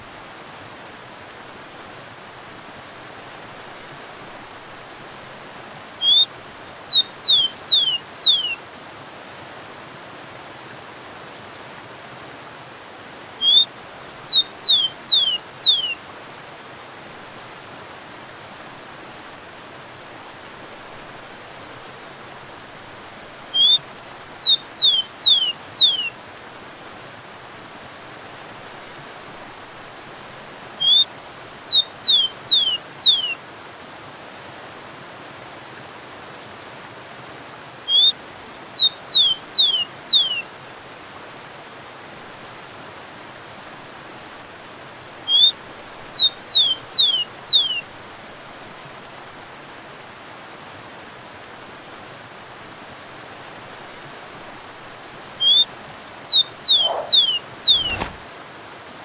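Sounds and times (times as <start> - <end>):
sparrow singing: 6.0 - 8.6, 13.4 - 16.0, 23.6 - 26.1, 30.8 - 33.4, 37.9 - 40.4, 45.3 - 47.8, 55.4 - 58.2
waterfall rushing: 47.3 - 58.9.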